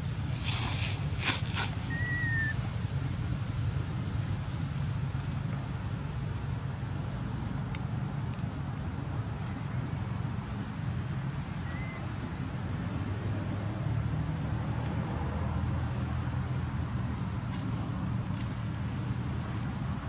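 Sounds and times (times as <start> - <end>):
low outdoor background rumble: 0.0 - 20.0
faint chirp: 1.9 - 2.6, 11.5 - 12.2.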